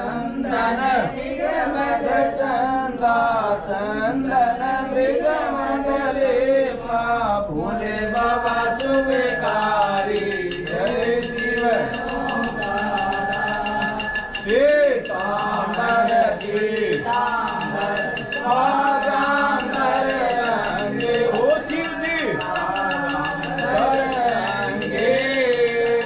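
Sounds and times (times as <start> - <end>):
worshippers singing together: 0.0 - 26.0
temple bell ringing: 7.8 - 26.0.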